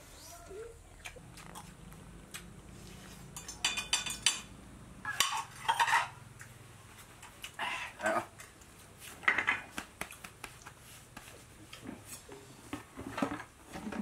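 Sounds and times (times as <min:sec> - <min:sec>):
metal bowl and plate clinking: 0:03.3 - 0:06.2.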